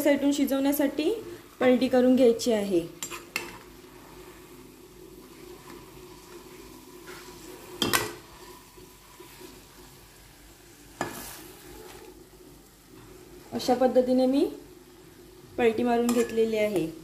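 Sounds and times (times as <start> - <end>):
faint sizzle: 0.0 - 17.0
spatula scraping a pan: 3.0 - 10.3, 10.9 - 12.1.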